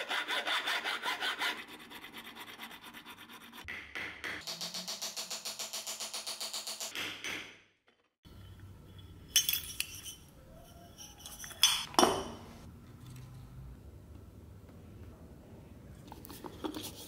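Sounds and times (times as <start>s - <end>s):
metal lids clinking: 10.9s - 12.5s.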